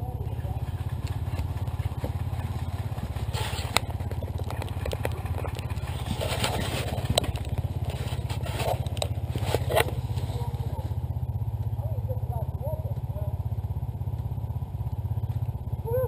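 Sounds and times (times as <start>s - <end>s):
motorcycle engine idling: 0.0s - 16.0s
scrapes and knocks: 0.7s - 10.9s.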